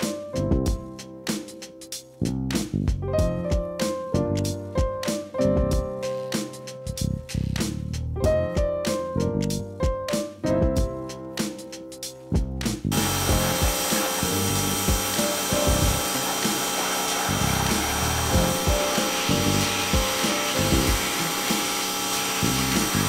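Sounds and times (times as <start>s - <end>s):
background music: 0.0s - 23.0s
pressure washer spraying: 12.9s - 23.0s.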